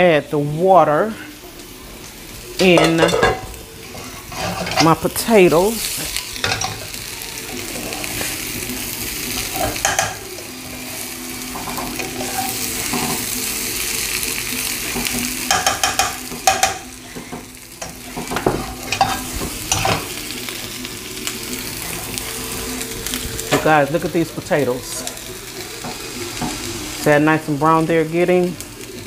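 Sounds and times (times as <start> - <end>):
potatoes sizzling in a skillet: 0.0 - 29.0
spatula scraping a pan: 2.6 - 7.0, 7.6 - 13.6, 14.7 - 20.2.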